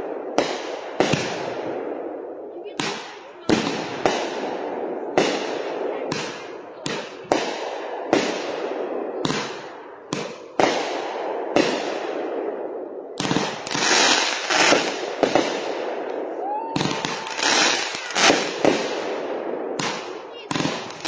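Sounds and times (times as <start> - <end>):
fireworks exploding with echo: 0.0 - 21.0
fireworks hissing crackle: 13.2 - 15.6, 16.5 - 19.0.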